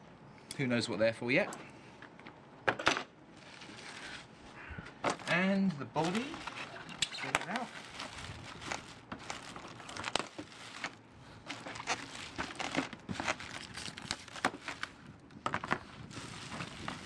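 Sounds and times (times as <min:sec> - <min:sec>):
plastic wrapping crinkling: 0:03.4 - 0:04.3, 0:04.9 - 0:17.0.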